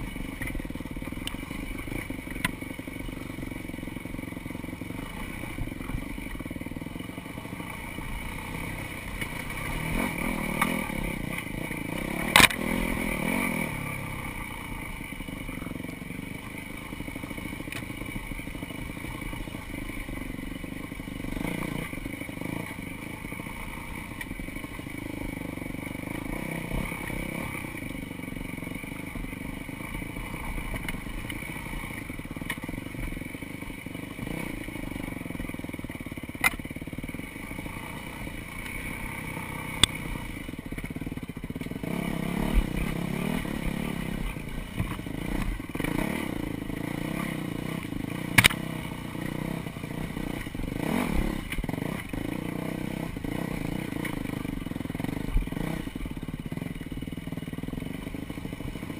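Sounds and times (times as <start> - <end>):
dirt bike engine running: 0.0 - 58.9.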